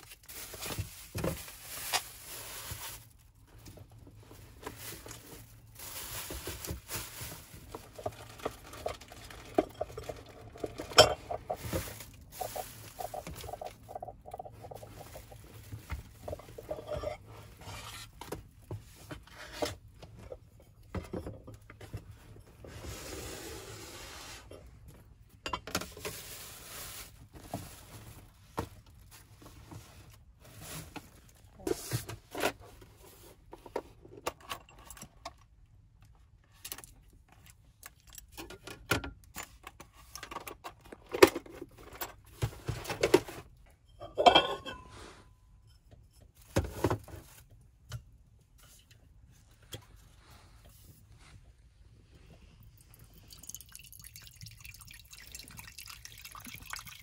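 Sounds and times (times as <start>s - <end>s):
plastic bags rustling: 0.0s - 19.2s, 25.9s - 32.1s.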